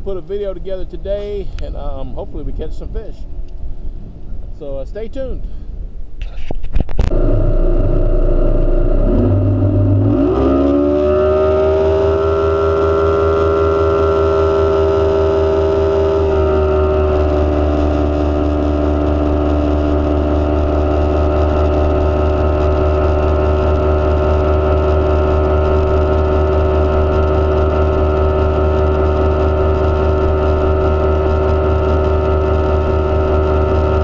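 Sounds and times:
outboard motor running: 6.9 - 34.0
water and wind rushing: 9.2 - 34.0.

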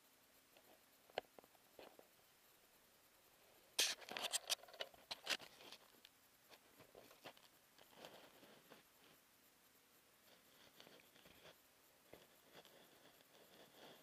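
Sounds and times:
faint ticks: 0.0 - 3.2.

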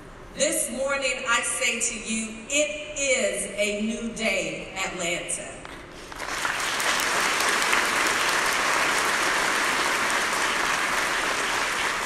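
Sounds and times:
audience applauding: 6.1 - 12.0.

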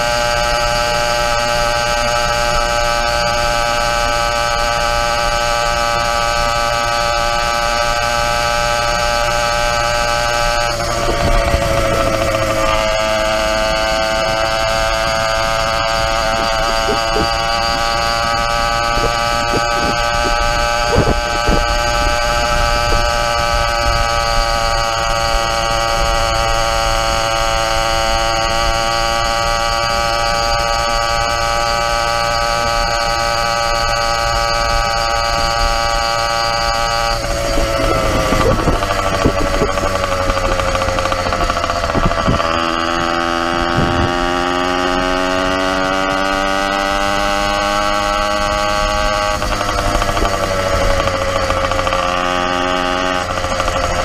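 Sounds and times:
motorized bicycle engine running: 0.0 - 54.0
wind noise: 8.8 - 28.0, 34.3 - 45.9, 47.0 - 52.0.

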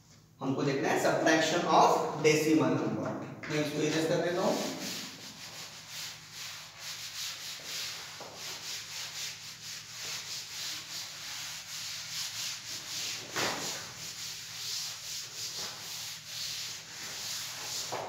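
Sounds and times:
cloth wiping chalk off blackboard: 4.0 - 18.0.

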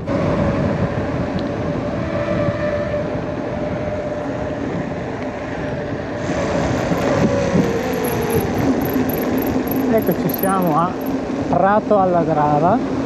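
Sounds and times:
steady whine: 5.9 - 11.4.

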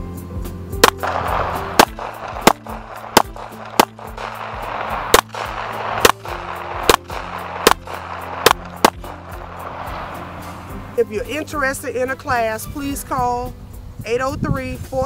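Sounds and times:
background music sustained notes: 0.0 - 14.4
pistol shots: 0.8 - 9.8.

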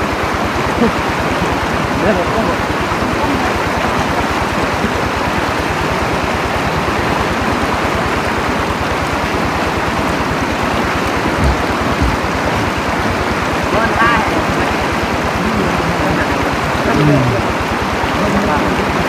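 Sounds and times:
stream water rushing: 0.0 - 19.0
dull low thumps: 11.2 - 12.6.

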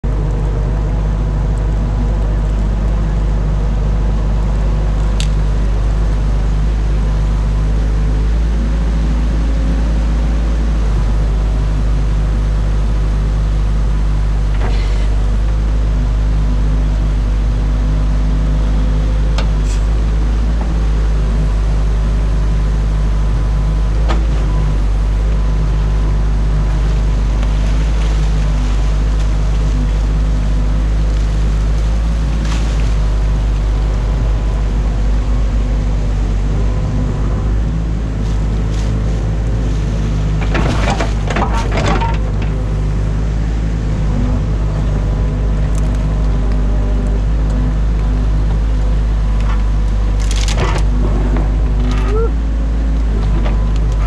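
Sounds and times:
excavator engine running: 0.0 - 54.0.

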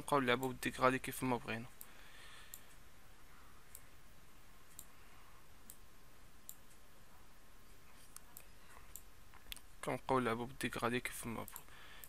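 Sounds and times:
low steady hiss: 0.0 - 12.0
computer mouse clicks: 4.7 - 4.9, 5.6 - 6.8, 8.0 - 9.7, 11.4 - 11.8.

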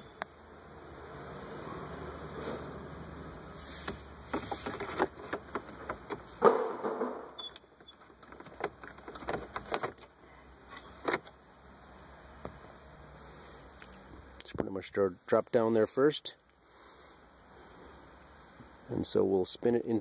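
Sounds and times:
hard plastic clicking and knocking: 4.3 - 7.1, 8.0 - 10.1.

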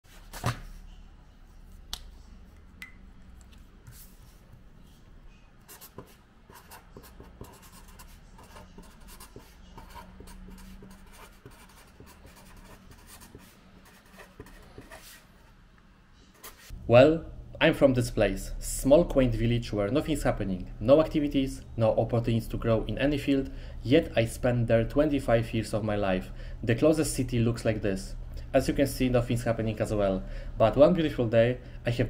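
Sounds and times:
marker scratching on paper: 5.7 - 15.3.

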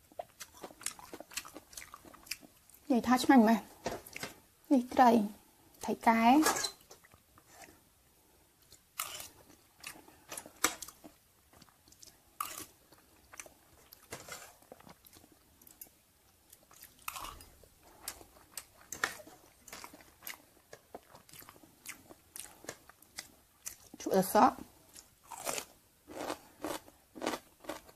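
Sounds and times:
chewing with wet mouth smacks: 0.1 - 2.8.

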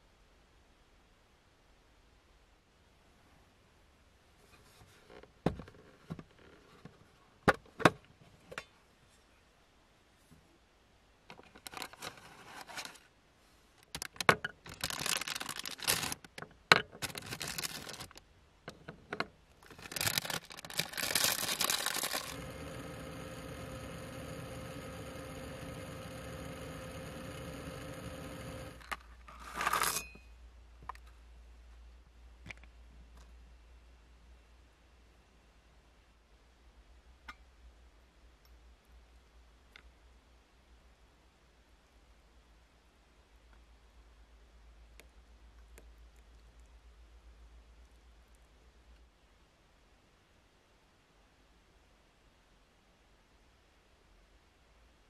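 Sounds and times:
snack bag crinkling: 14.0 - 16.3, 17.0 - 18.2, 19.6 - 23.0
steady hum: 20.8 - 29.0.

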